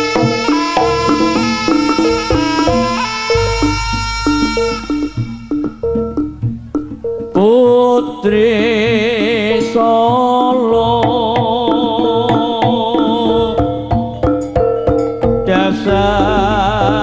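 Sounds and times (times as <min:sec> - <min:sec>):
struck pitched notes: 0:00.0 - 0:07.8
drum strokes: 0:00.0 - 0:08.1, 0:09.8 - 0:17.0
wavering vibrato melody: 0:00.0 - 0:17.0.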